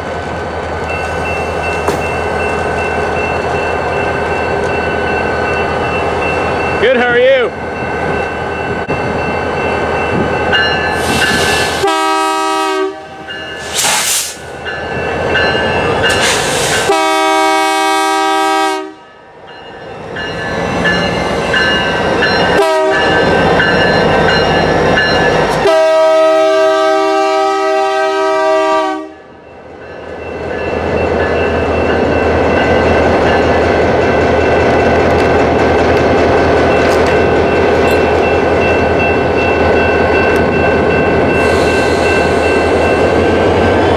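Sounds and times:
train wheels clacking on rails: 0.8s - 6.8s
locomotive horn blasts: 11.8s - 13.3s, 16.8s - 19.1s, 22.5s - 23.1s, 25.6s - 29.3s.

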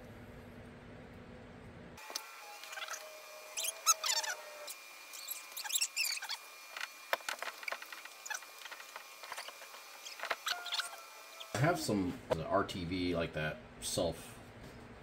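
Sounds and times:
short sliding squeaks: 2.6s - 11.6s.

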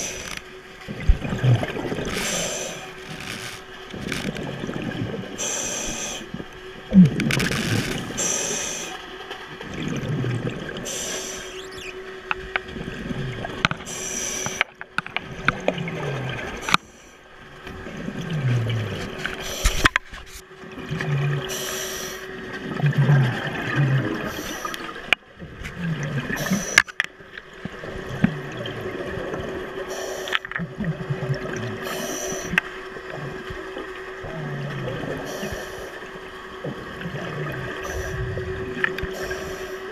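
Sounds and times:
gurgling exhaled bubbles: 0.0s - 8.9s, 9.5s - 12.0s, 12.7s - 14.7s, 15.3s - 16.8s, 17.8s - 19.9s, 20.7s - 26.9s, 27.6s - 35.9s, 36.5s - 39.9s
faint steady hum: 0.0s - 39.9s
regulator hiss on inhale: 2.1s - 3.6s, 5.4s - 6.4s, 8.2s - 9.0s, 10.8s - 11.6s, 13.8s - 14.7s, 21.5s - 22.3s, 26.4s - 27.0s, 29.9s - 30.5s, 31.8s - 32.6s, 35.2s - 36.0s, 38.9s - 39.9s.

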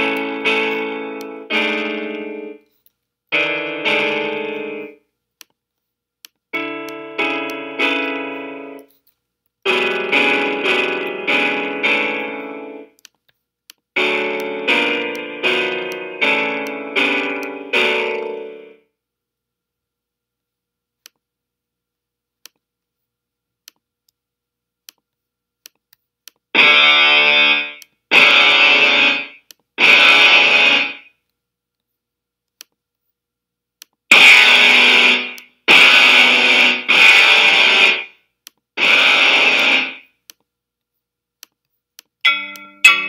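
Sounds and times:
distorted electric guitar chords: 0.0s - 2.6s, 3.3s - 5.0s, 6.6s - 8.9s, 9.7s - 12.9s, 14.0s - 18.7s, 26.6s - 31.1s, 34.1s - 38.2s, 38.8s - 40.1s, 42.3s - 43.0s.

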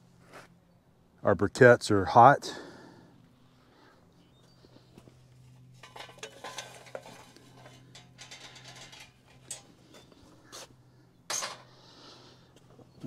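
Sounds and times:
charcoal clattering: 5.8s - 10.2s.

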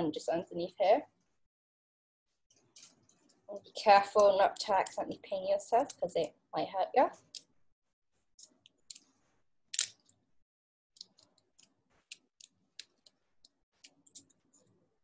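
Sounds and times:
wooden sticks clicking and tapping: 11.0s - 14.7s.

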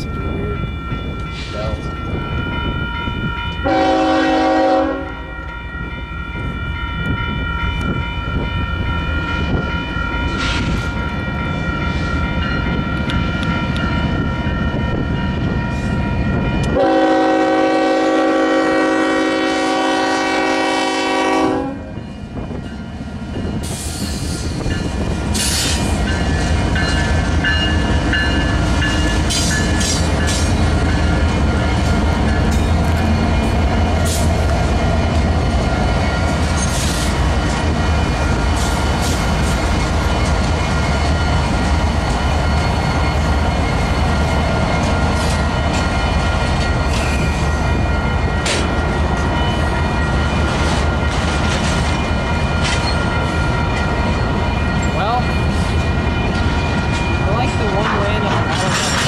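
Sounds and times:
train engines and wheels rumbling: 0.0s - 59.0s
locomotive air horn blasts: 3.6s - 5.3s, 16.7s - 22.0s
wheels clicking on rail joints: 23.4s - 59.0s.

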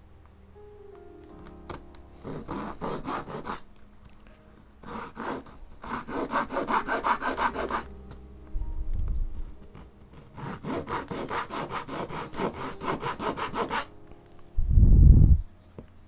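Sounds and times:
hand saw cutting wood: 2.2s - 3.6s, 4.8s - 7.9s, 9.7s - 13.9s.

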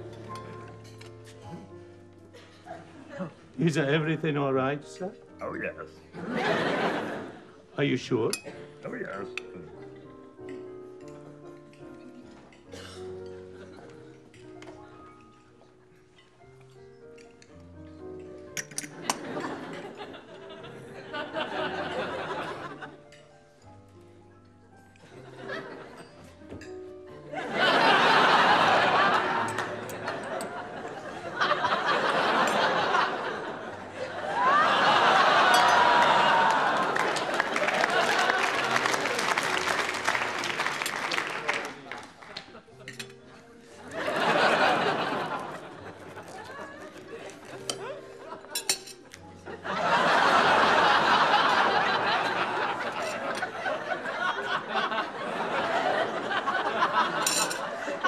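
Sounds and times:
audience laughing: 6.2s - 7.6s, 19.1s - 23.0s, 25.2s - 26.2s, 27.3s - 48.5s, 49.4s - 58.0s.

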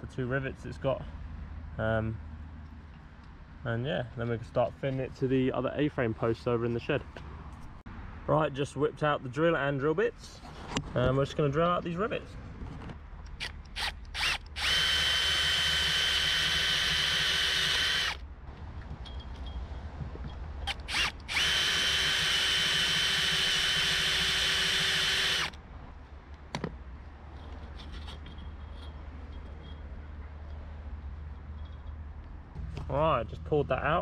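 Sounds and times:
cordless drill drilling metal: 13.3s - 18.2s, 20.7s - 25.6s.

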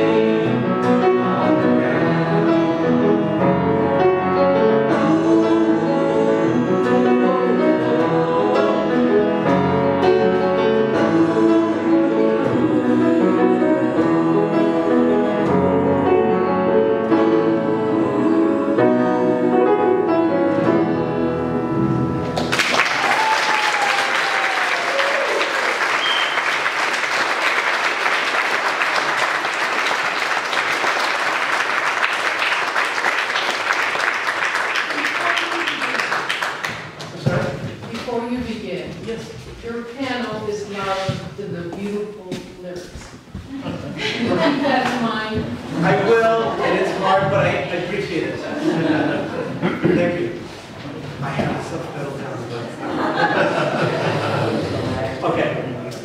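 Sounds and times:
guitar playing: 0.0s - 22.6s
piano playing: 0.0s - 37.6s, 38.2s - 50.5s
audience applauding: 22.4s - 37.4s.

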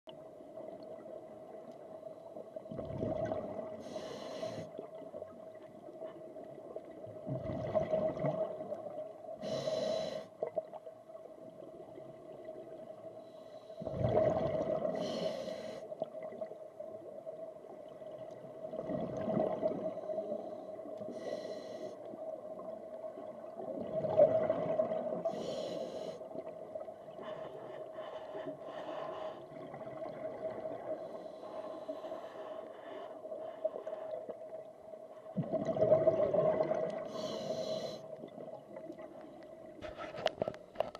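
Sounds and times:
regulator inhale rushing: 3.8s - 4.7s, 9.4s - 10.3s, 15.0s - 15.9s, 20.1s - 22.0s, 25.3s - 26.3s, 37.1s - 38.1s.

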